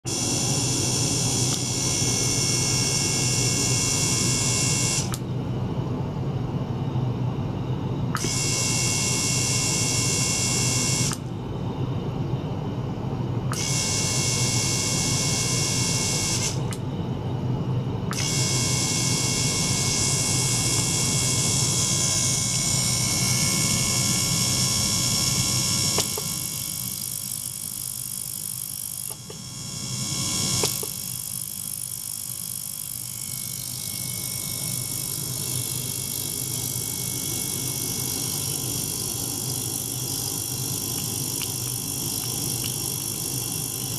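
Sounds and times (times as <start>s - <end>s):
high-pitched ultrasonic whine: 0.0s - 43.9s
water pump humming: 18.2s - 27.8s, 29.1s - 43.9s.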